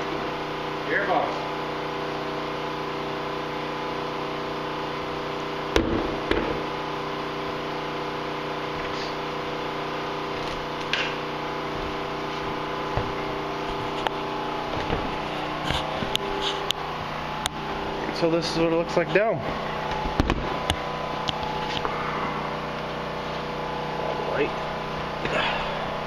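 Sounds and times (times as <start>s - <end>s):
steady mechanical hum: 0.0s - 26.0s
knocks and clunks of parts: 14.7s - 16.2s.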